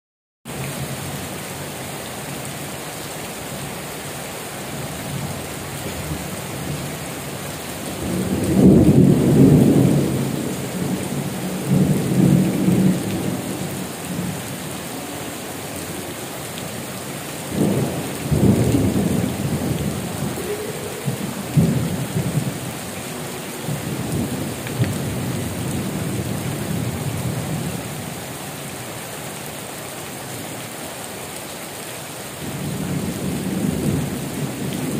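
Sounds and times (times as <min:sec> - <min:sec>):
heavy rain: 0:00.5 - 0:34.9
thunder rumbling: 0:07.8 - 0:14.4, 0:17.4 - 0:27.4.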